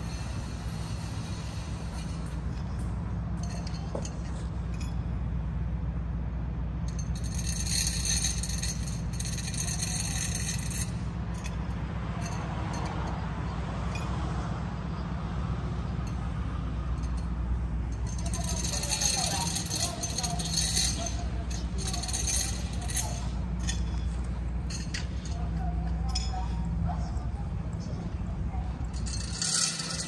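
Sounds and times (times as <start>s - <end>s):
loose fittings rattling: 0.0s - 5.0s, 6.9s - 13.2s, 16.9s - 26.6s, 28.8s - 30.0s
vehicle engine drone: 0.0s - 30.0s.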